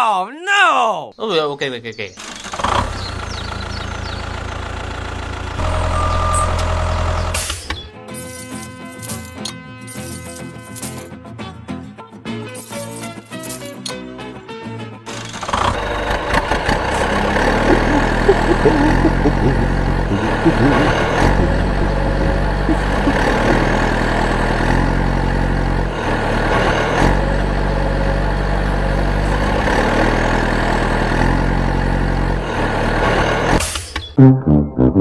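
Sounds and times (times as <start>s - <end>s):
tractor engine running: 2.2s - 7.9s, 15.1s - 33.8s.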